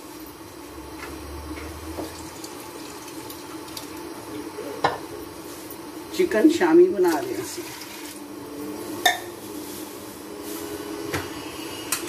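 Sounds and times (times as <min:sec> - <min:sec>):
water running from a tap: 0:02.0 - 0:04.4, 0:07.0 - 0:08.2.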